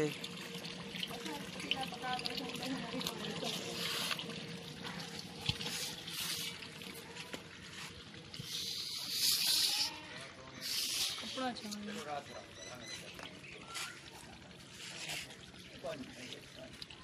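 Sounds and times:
cloth rubbing metal pot rim: 7.6 - 12.3.

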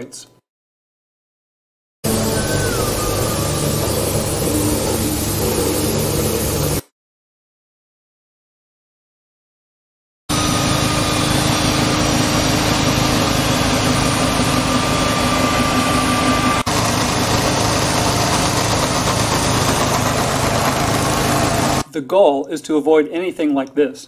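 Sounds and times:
electric core drill cutting: 2.1 - 6.9, 10.3 - 21.9.

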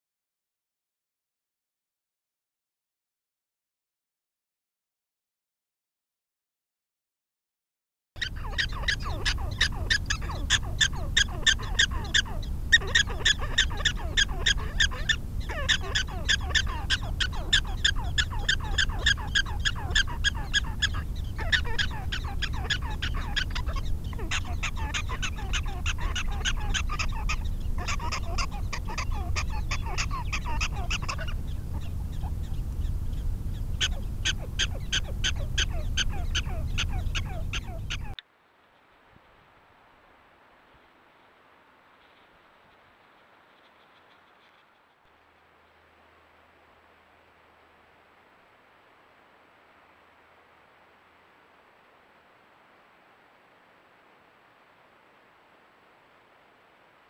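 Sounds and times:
prairie dog alarm barks: 8.2 - 38.2.

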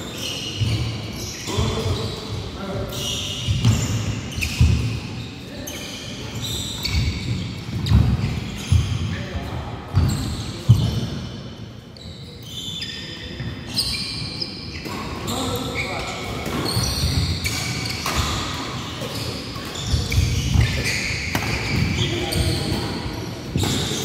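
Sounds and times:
shoe squeaks: 0.0 - 24.0
racket hitting shuttlecock: 19.6 - 22.0.

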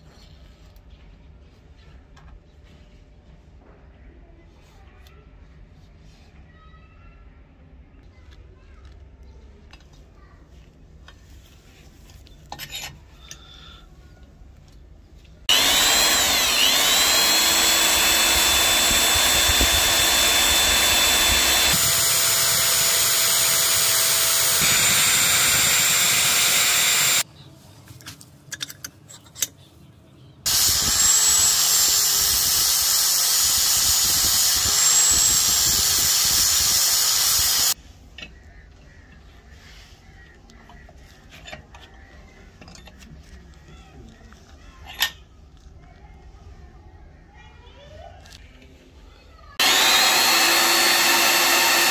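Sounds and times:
electric drill whining: 15.5 - 27.2, 30.5 - 37.8, 49.6 - 51.9.

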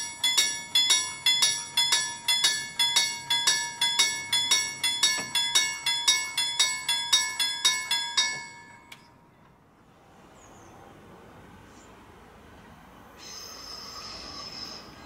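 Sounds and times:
level crossing warning bell: 0.0 - 9.4.

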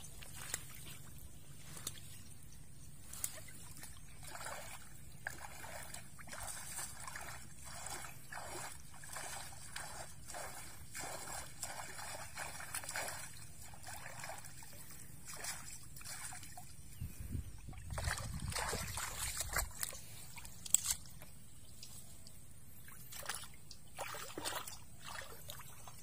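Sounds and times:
muddy water sloshing: 0.0 - 26.0.

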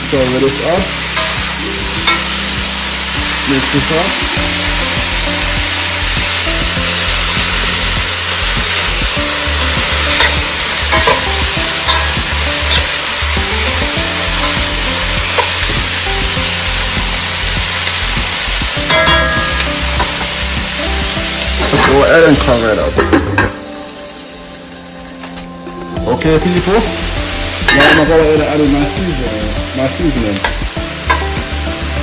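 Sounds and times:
food sizzling in a metal pot: 0.0 - 32.0
metal spoon clinking against pot: 10.9 - 11.3, 18.9 - 19.6.

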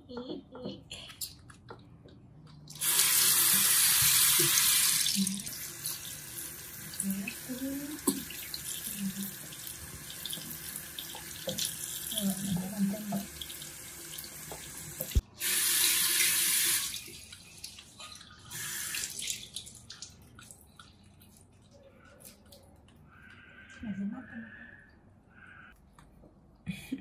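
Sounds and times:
tap water splashing over hands: 8.0 - 8.6, 9.4 - 11.7.

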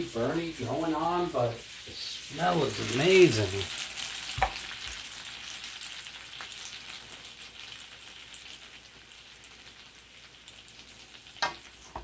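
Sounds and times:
butter sizzling in a skillet: 0.0 - 12.0.

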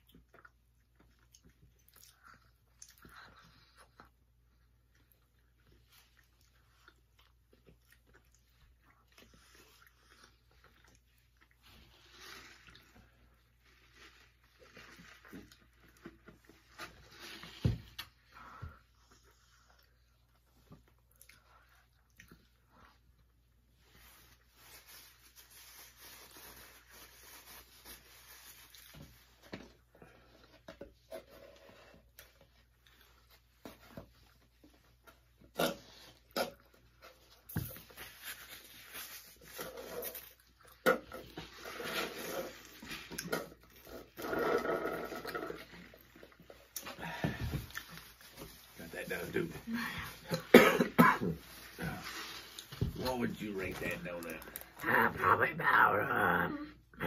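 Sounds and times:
chewing and lip smacks: 0.0 - 11.6
slurping through straws: 41.4 - 46.1.

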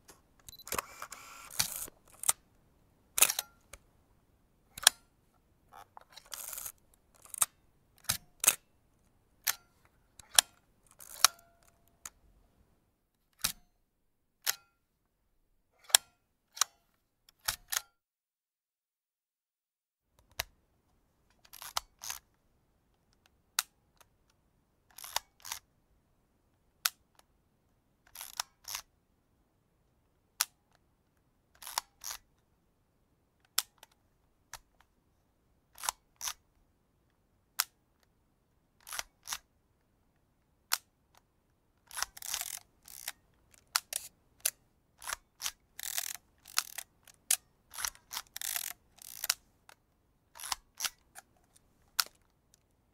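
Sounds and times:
short rasping mechanical sound: 0.5 - 2.3
camera shutter click: 0.5 - 2.4, 41.9 - 43.1, 45.0 - 46.9, 47.8 - 49.4.

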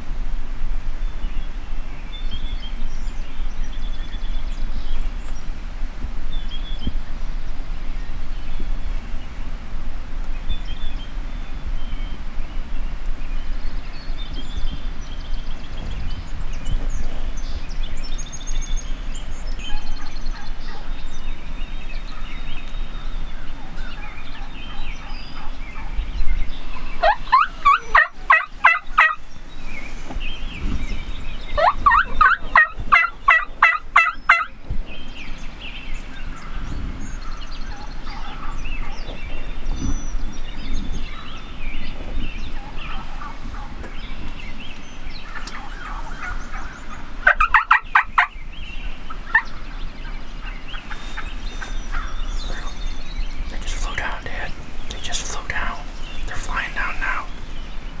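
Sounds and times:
faint bird calls: 10.4 - 58.0
turkeys gobbling: 26.9 - 29.2, 31.6 - 34.6, 42.6 - 44.4, 45.2 - 48.4, 49.1 - 52.8.

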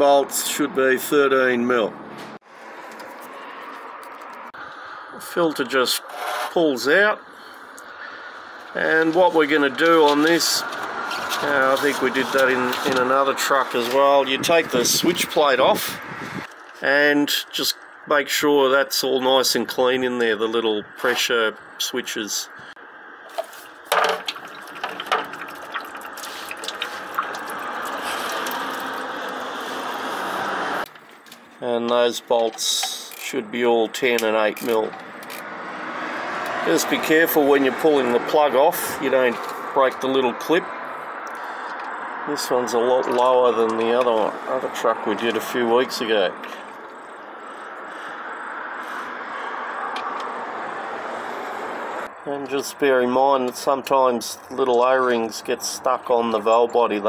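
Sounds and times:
fluid streaming into metal tray: 24.0 - 29.4.

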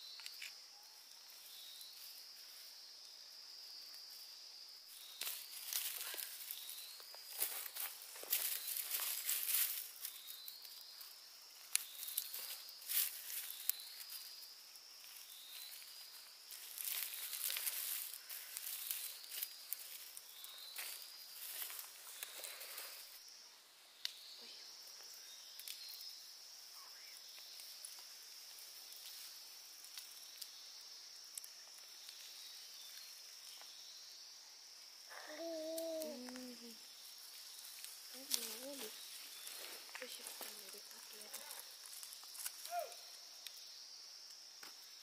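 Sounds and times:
insects droning: 0.0 - 45.0
rising insect trills: 0.0 - 45.0
rustling plant material: 5.0 - 14.4, 15.0 - 23.2, 35.5 - 43.1.

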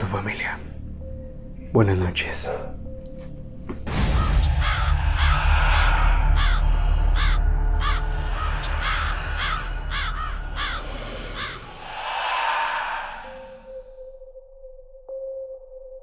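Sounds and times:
low rumble: 3.9 - 14.4
crow cawing: 4.2 - 13.8
noisy swell: 4.9 - 14.3.

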